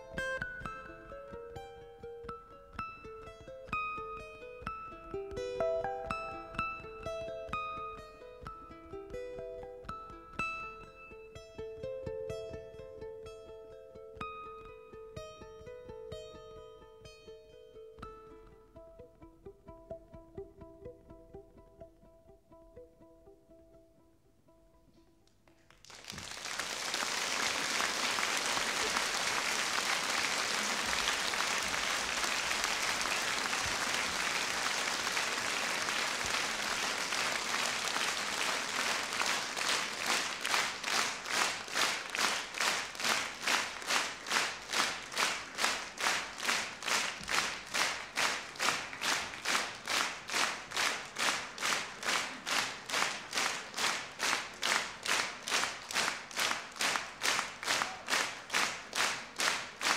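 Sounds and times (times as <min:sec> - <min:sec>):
rhythmic clapping in unison: 0:25.5 - 0:59.9
audience applause: 0:25.6 - 0:59.9.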